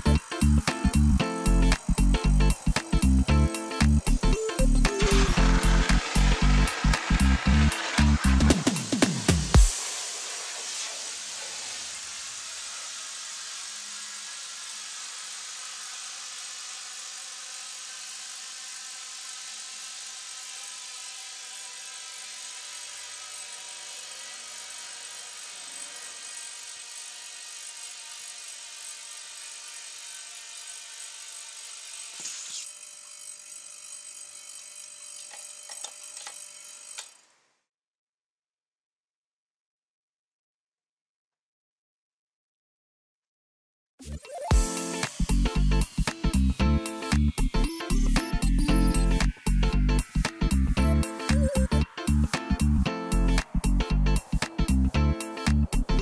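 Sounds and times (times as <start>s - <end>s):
compressed air hissing: 44.5s - 55.8s.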